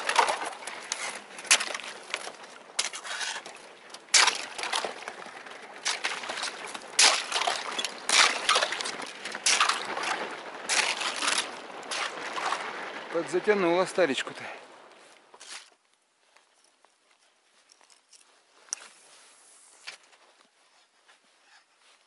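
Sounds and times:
thin ice cracking and crunching: 0:00.0 - 0:12.2
water sloshing: 0:00.0 - 0:15.8.

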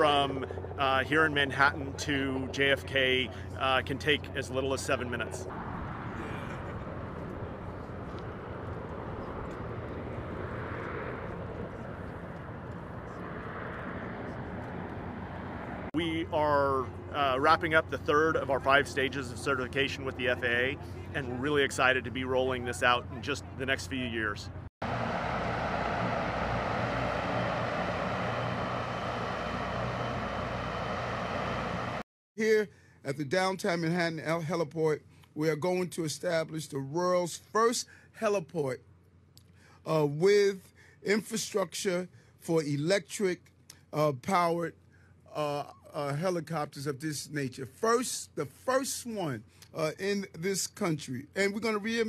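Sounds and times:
aircraft propellers humming and hissing: 0:00.0 - 0:32.0
electric propellers humming: 0:24.8 - 0:32.0.

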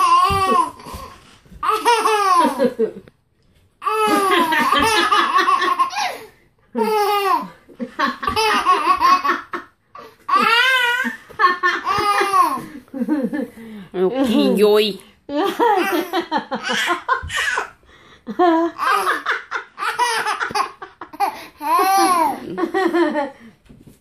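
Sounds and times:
baby laughing: 0:00.0 - 0:02.8, 0:03.8 - 0:12.8, 0:15.4 - 0:17.8, 0:18.6 - 0:22.6.

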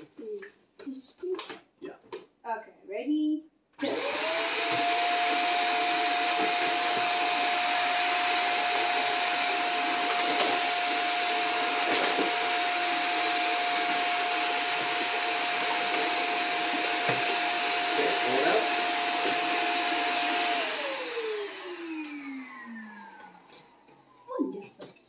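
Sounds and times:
vacuum cleaner whining: 0:03.8 - 0:24.3.

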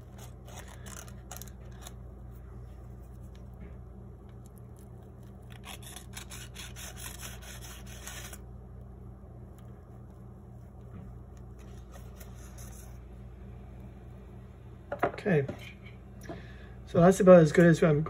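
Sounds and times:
knife scraping dough: 0:00.0 - 0:02.0, 0:04.7 - 0:08.4, 0:11.6 - 0:13.0
low steady hum: 0:00.0 - 0:18.0.

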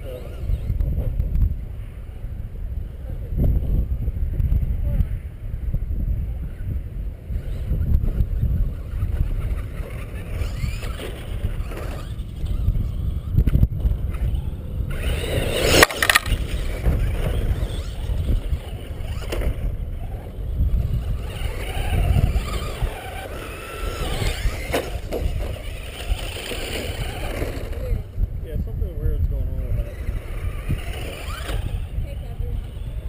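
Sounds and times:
wind buffeting microphone: 0:00.0 - 0:33.0
toy truck motor whining: 0:07.4 - 0:13.4, 0:14.1 - 0:28.1, 0:29.6 - 0:33.0
sharp clatter: 0:13.4 - 0:19.7.

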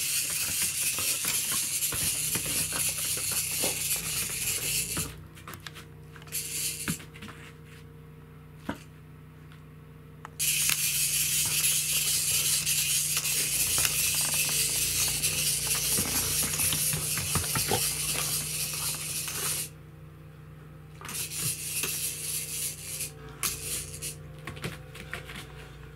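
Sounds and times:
clockwork toy whirring: 0:00.0 - 0:05.2, 0:06.2 - 0:07.0, 0:10.4 - 0:19.7, 0:21.0 - 0:24.2
clockwork toy clicks: 0:10.4 - 0:17.0.

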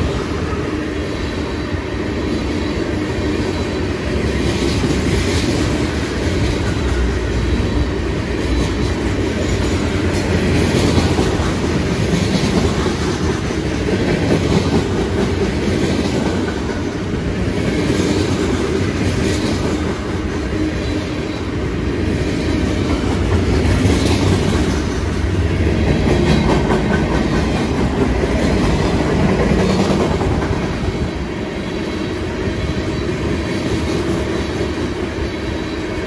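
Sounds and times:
freight train wheels rumbling: 0:00.0 - 0:36.0
wheels clacking over rail joints: 0:22.3 - 0:30.9.

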